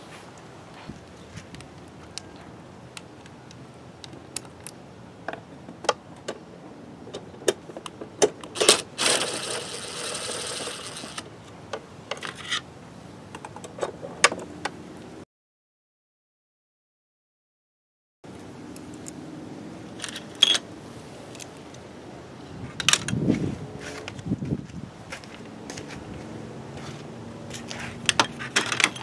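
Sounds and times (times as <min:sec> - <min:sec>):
impact driver running: 0:08.7 - 0:11.2.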